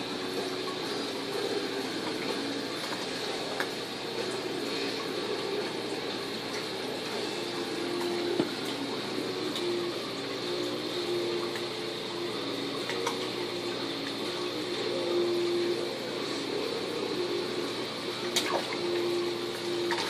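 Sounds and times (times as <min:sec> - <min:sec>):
faint hum: 0:00.0 - 0:20.0
water trickling and splashing: 0:18.0 - 0:20.0.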